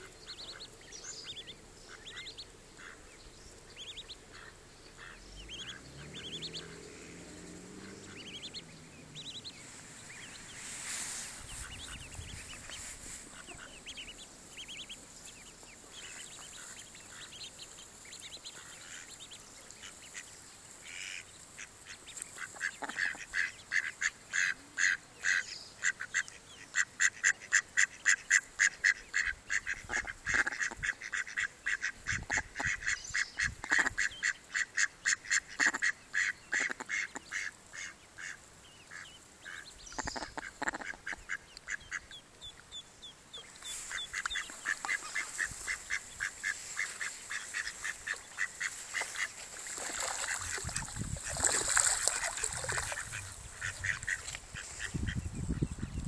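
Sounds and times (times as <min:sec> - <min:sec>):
ducklings peeping: 0:00.0 - 0:56.0.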